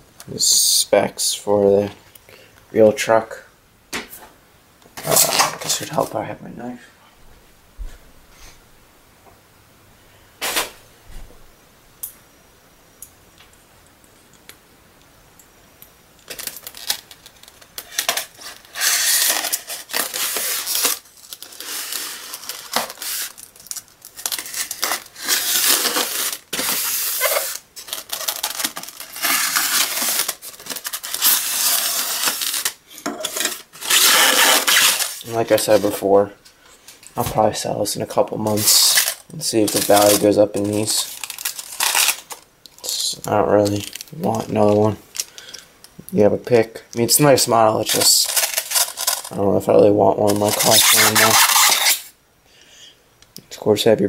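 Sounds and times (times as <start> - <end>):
knife scraping styrofoam: 17.8 - 23.4, 24.2 - 36.0, 38.5 - 42.4, 47.9 - 49.3, 50.2 - 52.1.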